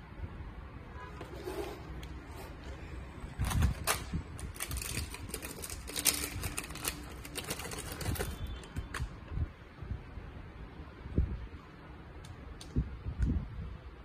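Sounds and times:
plastic bags crinkling: 3.6s - 8.5s.

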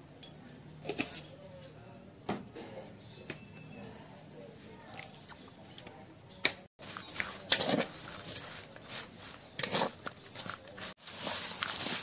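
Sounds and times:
spoon scraping metal bowl: 0.8s - 1.4s, 6.8s - 11.0s.

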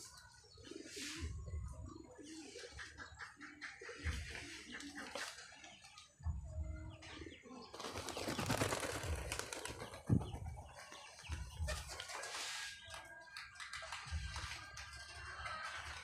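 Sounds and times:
pigeons flapping wings: 7.7s - 16.0s.

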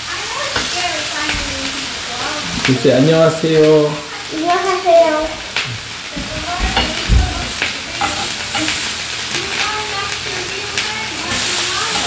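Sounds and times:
meat sizzling on a grill pan: 0.0s - 12.0s
tongs clicking against pan: 0.5s - 1.5s, 2.6s - 2.8s, 6.7s - 12.0s.

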